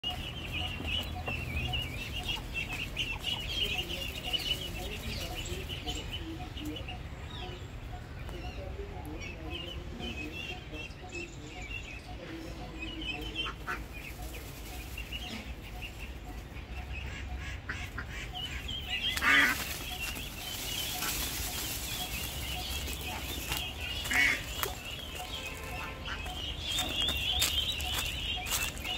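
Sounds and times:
ducklings peeping: 0.0s - 28.9s
rustling in dry leaves: 0.1s - 6.8s, 13.0s - 16.6s, 17.7s - 28.9s.

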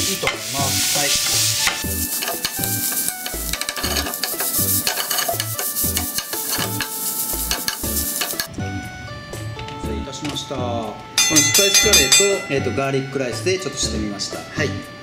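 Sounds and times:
rice sizzling in a frying pan: 0.0s - 8.5s
background music: 0.0s - 15.0s
metal ladle scraping a pan: 0.1s - 8.5s.

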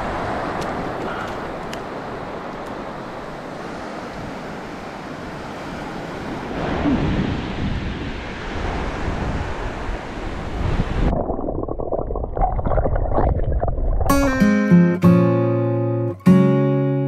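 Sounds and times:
waves breaking on sandy beach: 0.0s - 11.1s
wind buffeting microphone: 0.0s - 11.5s.

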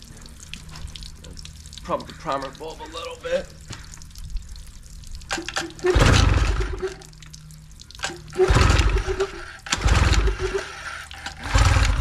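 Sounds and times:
churning water: 0.0s - 12.0s
outboard motor cranking and sputtering: 5.3s - 7.1s, 8.0s - 12.0s.

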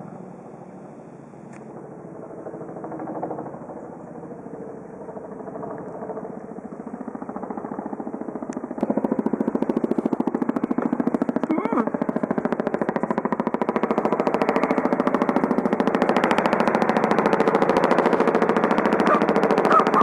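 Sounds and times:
helicopter rotors beating: 0.0s - 20.0s.

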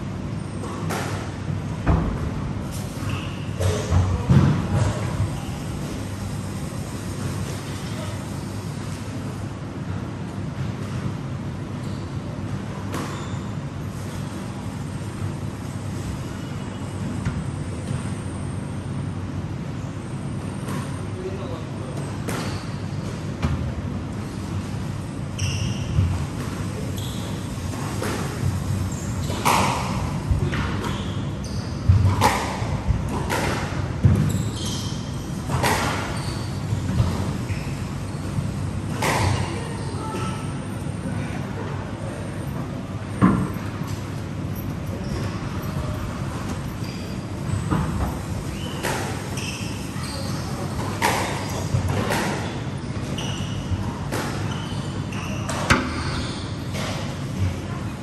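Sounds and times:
squash ball hitting rackets and walls: 0.6s - 5.4s, 25.7s - 39.6s, 43.1s - 44.0s, 50.5s - 57.6s.

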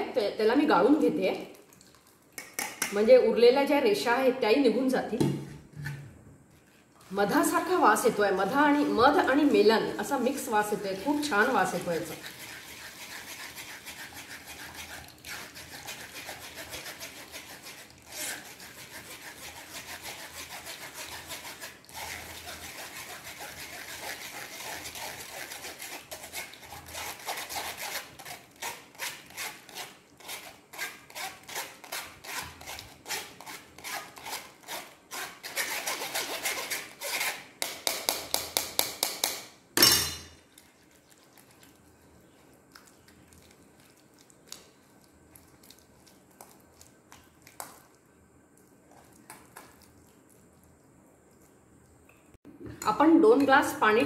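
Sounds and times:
spoon scraping mesh strainer: 6.7s - 37.5s.

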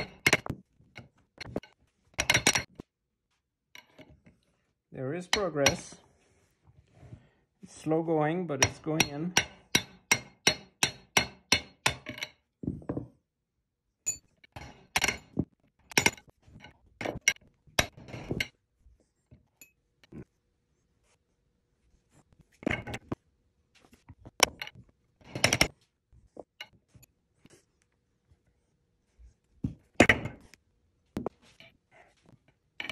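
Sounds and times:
metal clinks and knocks: 0.0s - 2.9s, 8.6s - 13.2s, 14.0s - 18.6s, 24.2s - 25.8s.

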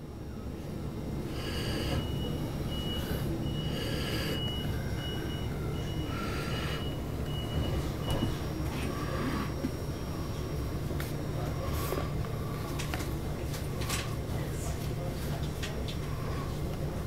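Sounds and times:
high tone beeping: 2.0s - 8.5s.

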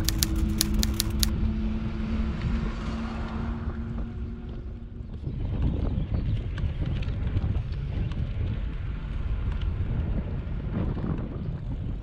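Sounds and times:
rapid even ticking: 0.0s - 1.3s
steady low hum: 0.0s - 2.8s
wind rumbling on microphone: 0.0s - 12.0s.

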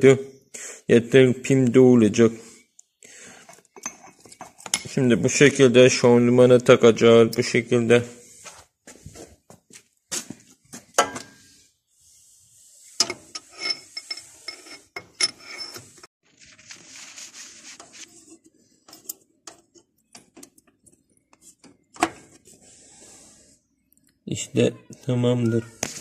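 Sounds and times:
metal rubbing: 12.7s - 19.2s.

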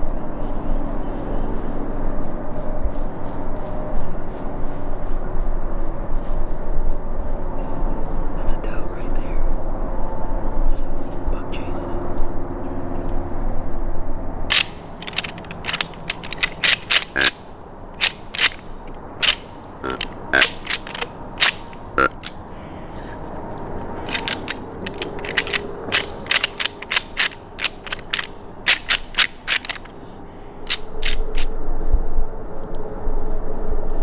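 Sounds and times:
hard objects clicking together: 14.5s - 22.4s, 23.8s - 30.0s, 30.7s - 31.5s.

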